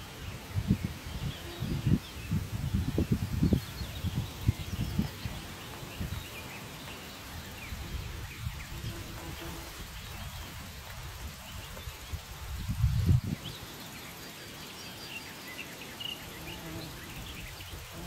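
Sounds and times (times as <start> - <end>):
wind buffeting microphone: 0.0 - 6.6, 7.2 - 13.6.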